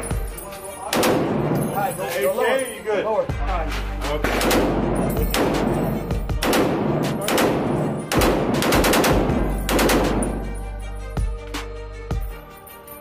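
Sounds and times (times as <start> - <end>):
background music: 0.0 - 13.0.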